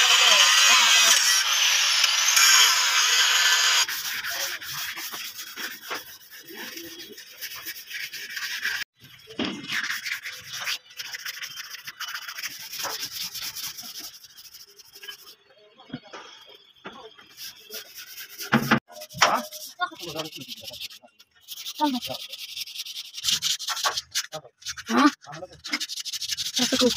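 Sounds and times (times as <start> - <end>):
sandpaper on metal: 0.0 - 15.4, 17.3 - 26.9.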